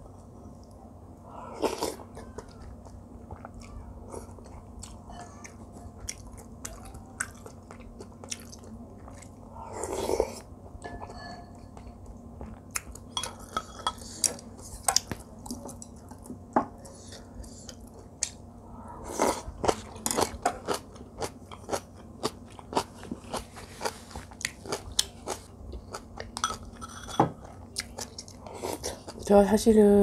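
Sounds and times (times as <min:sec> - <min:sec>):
person chewing and crunching: 0:01.6 - 0:10.4, 0:19.1 - 0:29.3.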